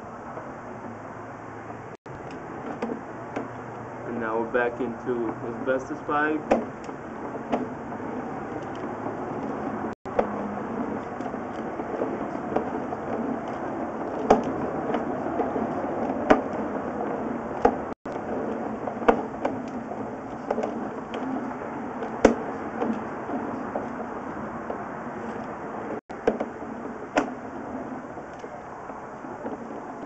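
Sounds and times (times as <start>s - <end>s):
cable dragging through drain: 2.1s - 30.0s
sharp knocks: 4.8s - 24.0s.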